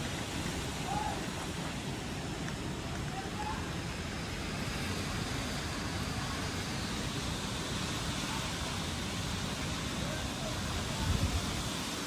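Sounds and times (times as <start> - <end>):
wind rushing through trees: 0.0 - 12.0
wind buffeting microphone: 10.1 - 12.0.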